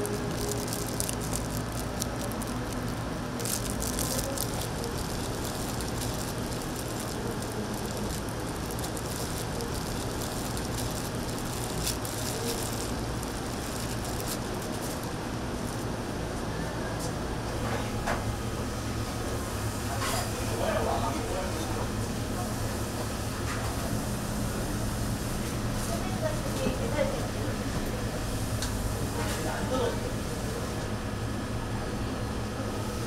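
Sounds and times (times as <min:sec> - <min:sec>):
wet squishing of food mixing: 0:00.0 - 0:15.0
plastic glove crinkling: 0:00.0 - 0:16.1
low kitchen hum: 0:00.0 - 0:33.0.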